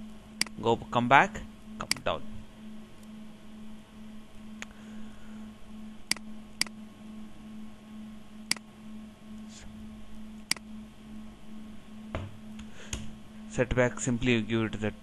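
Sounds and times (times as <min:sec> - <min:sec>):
faint steady hum: 0:00.0 - 0:15.0
computer mouse clicking: 0:01.8 - 0:02.1, 0:06.1 - 0:06.8, 0:10.4 - 0:10.7.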